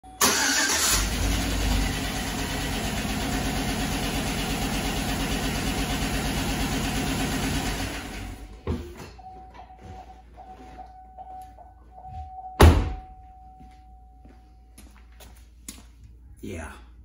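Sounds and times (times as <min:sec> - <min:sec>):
car engine starting and idling: 0:00.1 - 0:08.6.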